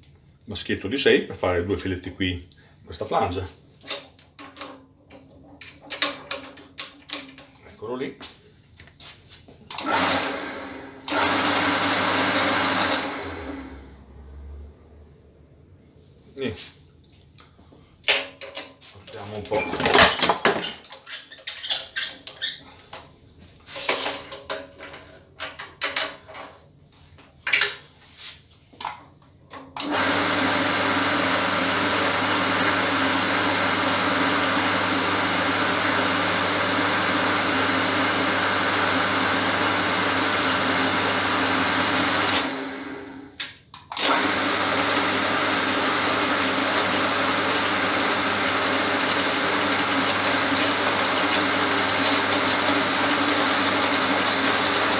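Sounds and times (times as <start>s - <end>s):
metal workpiece clicks and knocks: 3.9s - 7.6s, 24.2s - 26.6s
drill press motor running: 9.8s - 13.9s, 29.8s - 43.3s, 44.0s - 54.9s.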